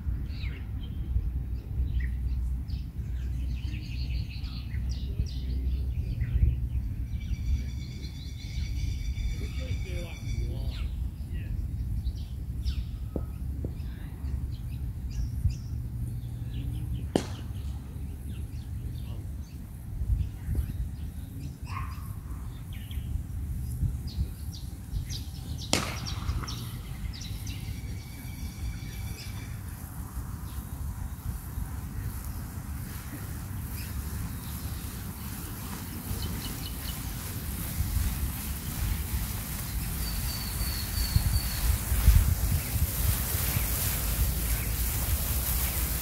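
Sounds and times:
bird chirps: 3.1s - 11.0s, 24.1s - 29.8s, 39.6s - 42.8s
whistled bird call: 39.9s - 42.1s.

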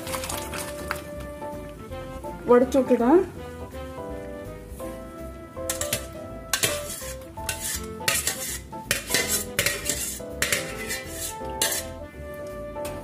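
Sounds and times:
metal pot and colander clanking: 0.0s - 1.0s, 5.7s - 12.0s
background music: 0.0s - 13.0s.

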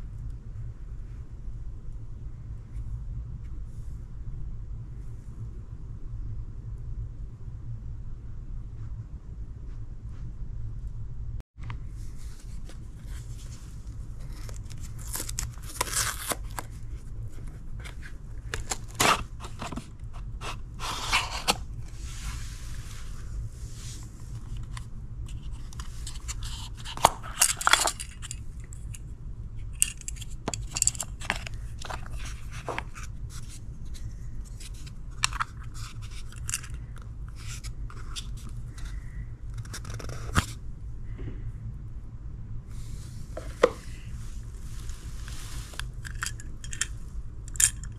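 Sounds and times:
low steady hum: 0.0s - 47.9s
cardboard box being opened: 14.2s - 16.8s.

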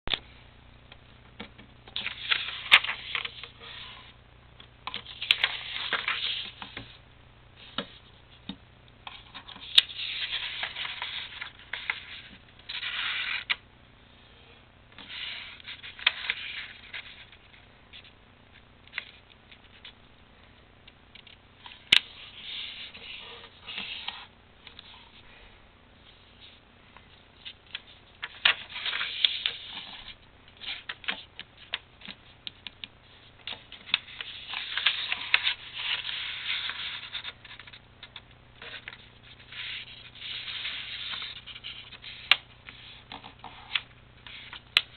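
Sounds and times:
paper rustling and sliding: 2.0s - 4.1s, 5.0s - 7.0s, 9.1s - 13.6s, 15.0s - 17.5s, 21.7s - 25.2s, 27.4s - 32.2s, 33.5s - 37.8s, 38.6s - 44.6s.

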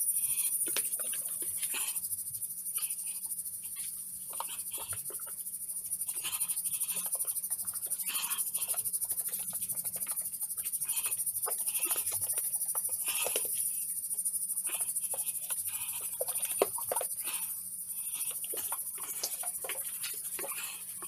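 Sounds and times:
steady high-pitched hiss: 0.0s - 21.0s.

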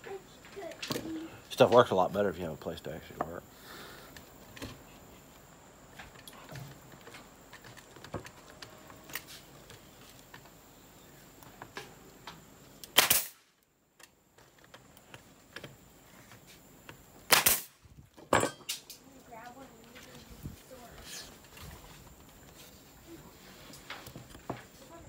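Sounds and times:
pneumatic nail gun firing: 12.8s - 13.5s, 17.3s - 17.8s.

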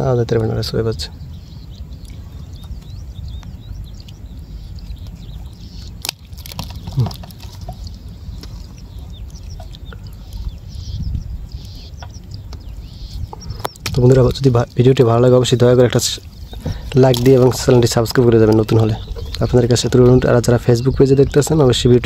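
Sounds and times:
low steady rumble: 0.0s - 22.0s
small birds chirping: 0.0s - 22.0s
net rustling and ticking: 6.0s - 9.8s.

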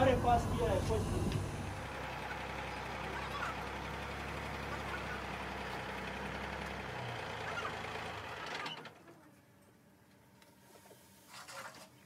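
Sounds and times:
vehicle engine running: 0.0s - 8.9s.

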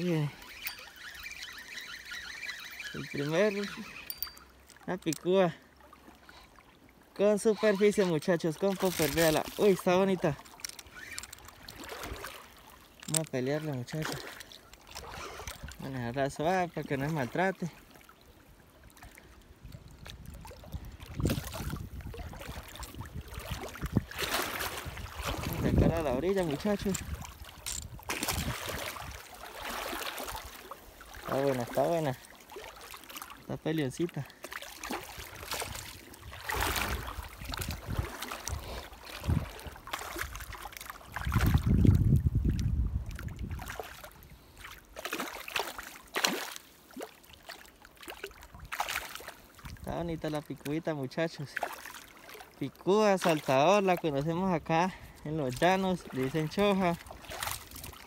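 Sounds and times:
river water rippling and splashing: 0.0s - 58.0s
wind buffeting microphone: 19.6s - 29.3s, 35.1s - 44.5s
fish splashing at water surface: 21.3s - 25.6s, 34.4s - 41.7s, 44.9s - 49.4s.

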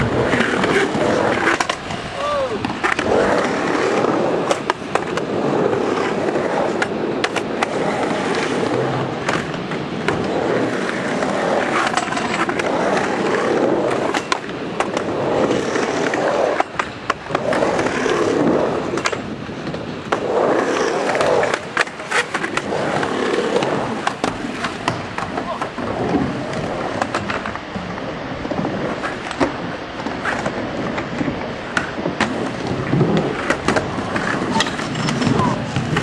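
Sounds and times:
skateboard wheels rolling on ramp: 0.0s - 36.0s
skateboard clacking on ramp: 0.3s - 28.1s.

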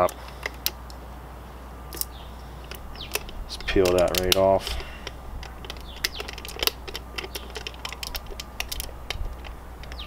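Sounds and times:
plastic wrap crinkling: 3.2s - 10.0s.

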